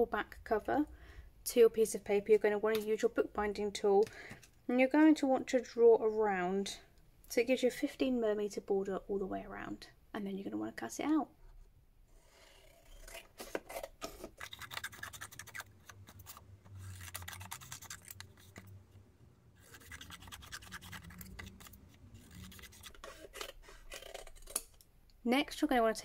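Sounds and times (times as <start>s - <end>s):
scissors cutting paper: 12.9s - 18.7s, 19.6s - 24.7s.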